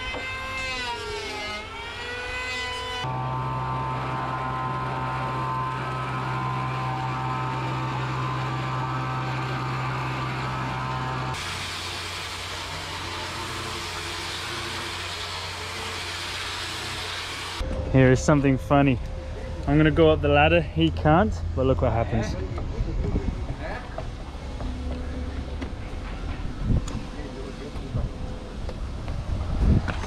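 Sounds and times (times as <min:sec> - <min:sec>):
angle grinder sanding wood: 0:00.0 - 0:17.6
electric hand planer whining: 0:00.0 - 0:17.6
power tool running steadily: 0:00.0 - 0:17.7.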